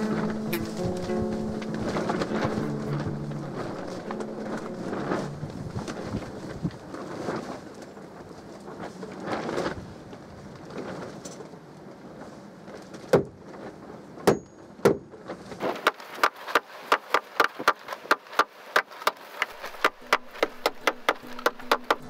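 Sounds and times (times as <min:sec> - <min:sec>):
hammer tapping wooden plugs: 0:15.8 - 0:22.0.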